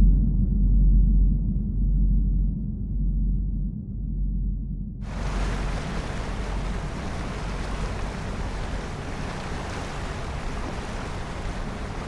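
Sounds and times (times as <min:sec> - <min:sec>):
boat engine rumble: 0:05.0 - 0:12.0
water rushing along hull: 0:05.0 - 0:12.0
wind on microphone: 0:05.0 - 0:12.0.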